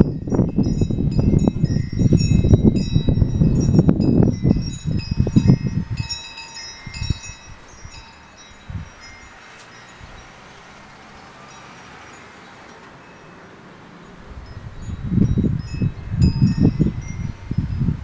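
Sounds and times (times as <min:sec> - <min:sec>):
wind buffeting microphone: 0:00.0 - 0:18.0
wind chimes ringing: 0:00.0 - 0:18.0.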